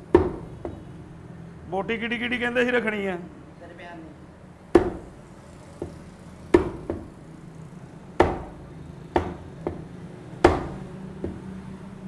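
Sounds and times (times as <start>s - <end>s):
meat cleaver chopping on wooden block: 4.8s - 5.1s, 5.8s - 7.1s, 8.2s - 8.6s, 9.2s - 11.6s.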